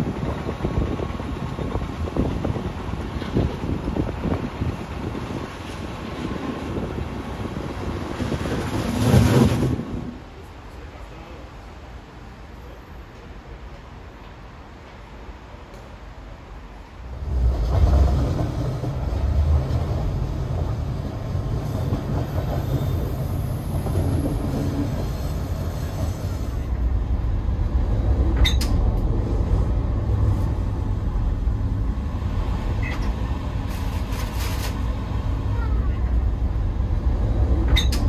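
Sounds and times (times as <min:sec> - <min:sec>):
train wheels rumbling on track: 0:00.0 - 0:38.0.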